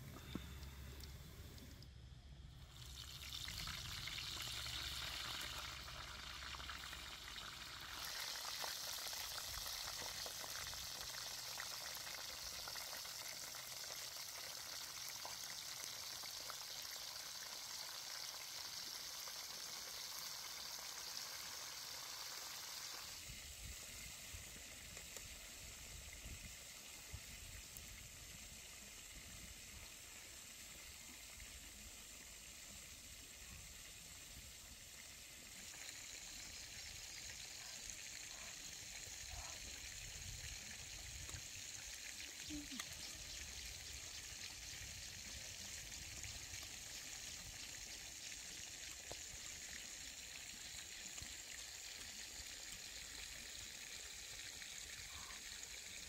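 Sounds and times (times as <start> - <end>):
food sizzling: 2.6 - 11.6.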